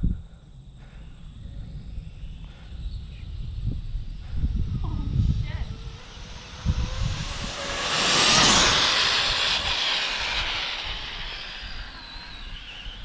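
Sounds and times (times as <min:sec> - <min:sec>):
electric motor whining: 0:04.4 - 0:13.0.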